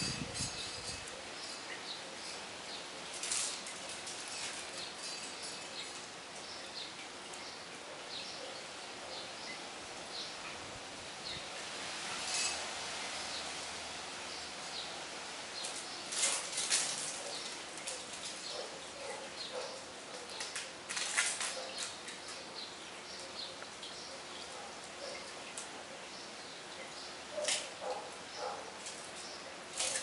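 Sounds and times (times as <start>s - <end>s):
outdoor background hiss: 0.0s - 30.0s
scuffling and rustling: 15.6s - 22.4s.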